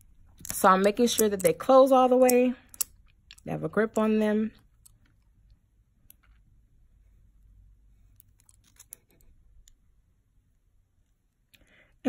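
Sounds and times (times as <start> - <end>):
pliers clicking: 2.2 - 3.0.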